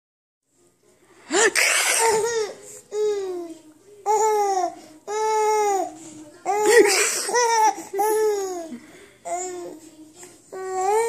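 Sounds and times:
baby laughing: 1.4 - 3.4, 6.5 - 9.6.

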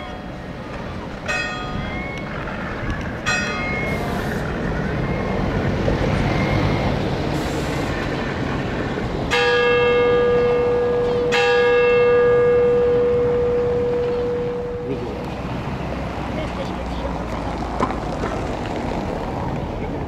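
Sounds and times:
church bell ringing: 1.2 - 2.3, 3.2 - 4.2, 9.3 - 15.0.

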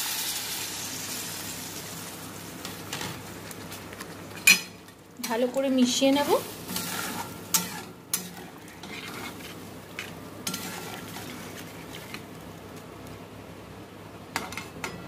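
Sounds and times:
low hiss from hot pan: 0.0 - 13.7
metal spatula scraping a pan: 5.8 - 12.2.

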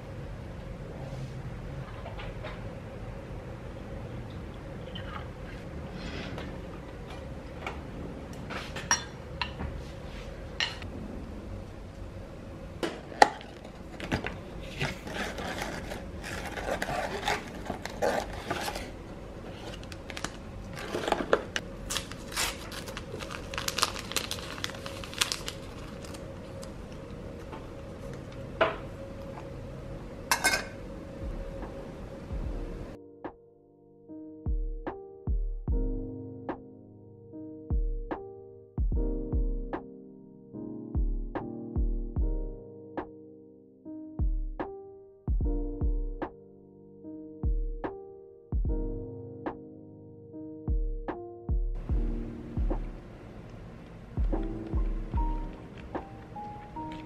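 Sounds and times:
faint steady hum: 0.0 - 33.0
glassware and dishes clinking: 8.8 - 9.6, 30.3 - 30.8
boxes rummaged through: 13.4 - 26.2.

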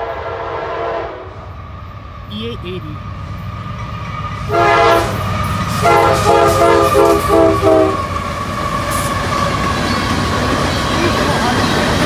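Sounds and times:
locomotive air horn toots: 0.0 - 1.3, 4.5 - 8.2
train rumbling past: 0.0 - 12.0.

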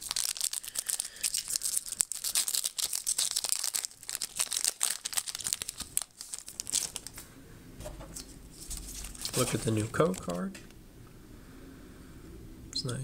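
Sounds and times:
foil wrapper tearing and crinkling: 0.0 - 7.2, 8.6 - 10.5.

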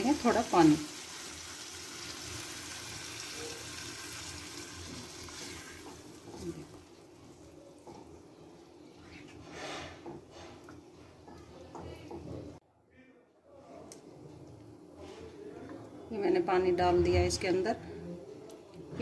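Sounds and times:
water hissing in hot pan: 0.0 - 7.4.

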